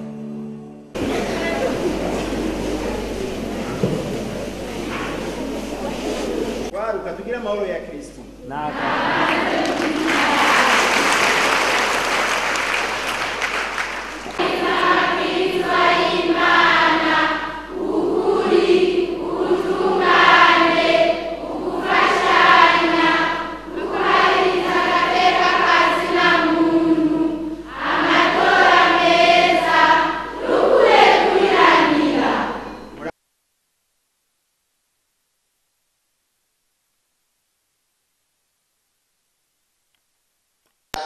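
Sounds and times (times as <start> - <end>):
group of voices singing: 8.7 - 13.4, 14.2 - 33.1
applause-like noise: 9.0 - 15.1.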